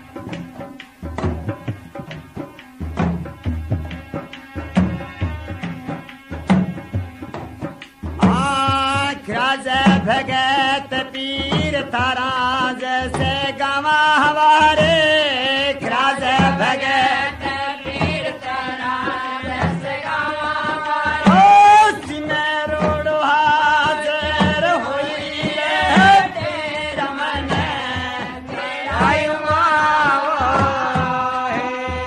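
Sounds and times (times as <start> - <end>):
hand drums beating: 0.0 - 32.0
men singing devotional song: 8.2 - 32.0.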